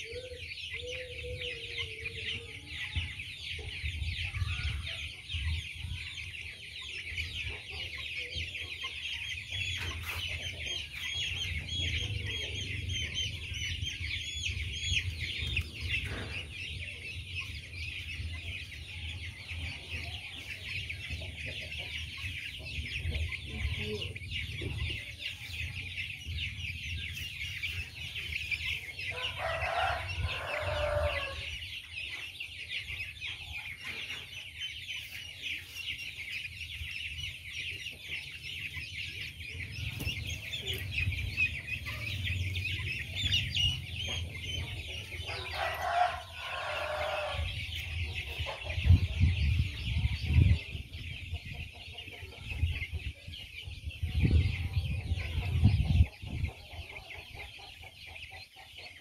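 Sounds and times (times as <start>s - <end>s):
chicks peeping: 0.0s - 59.0s.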